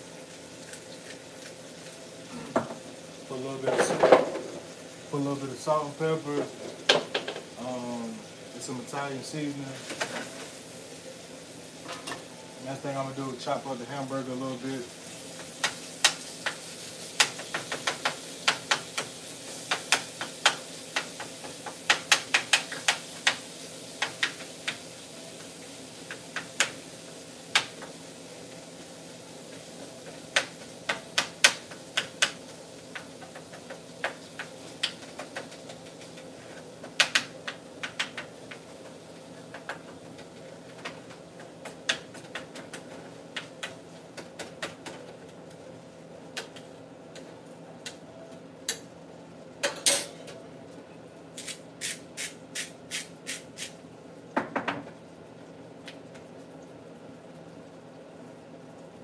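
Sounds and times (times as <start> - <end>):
meat sizzling: 0.0 - 48.0, 51.3 - 54.4
utensil tapping against frying pan: 15.6 - 23.4, 30.3 - 36.2, 36.8 - 38.6.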